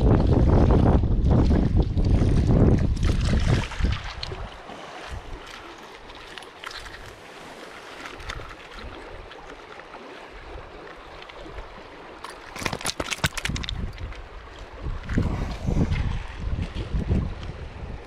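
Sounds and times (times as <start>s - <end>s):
wind on microphone: 0.0s - 5.4s, 12.6s - 18.0s
sharp clicks and rattles: 12.5s - 13.9s.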